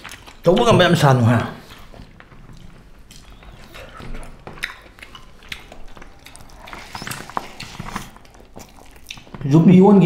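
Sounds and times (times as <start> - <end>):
chewing and lip smacks: 0.0 - 0.5, 1.6 - 9.6
fingers smacking food on plate: 3.1 - 9.4.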